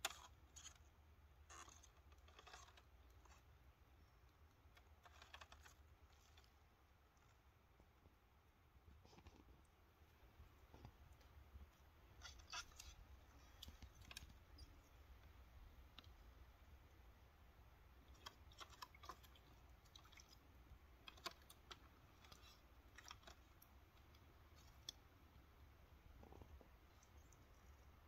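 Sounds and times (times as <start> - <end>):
cat pawing at water: 17.9 - 25.5.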